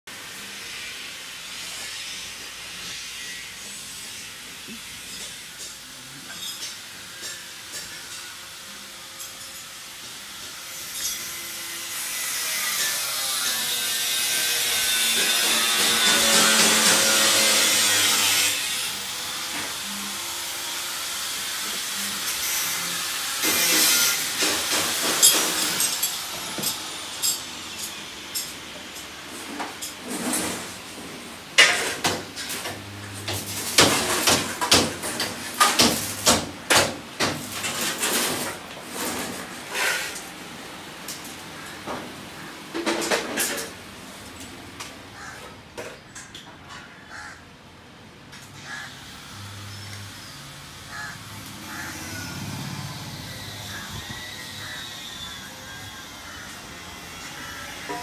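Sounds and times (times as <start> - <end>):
hand tools striking metal: 3.6 - 8.4, 9.2 - 18.7, 23.4 - 30.8, 31.6 - 40.3, 57.8 - 58.0.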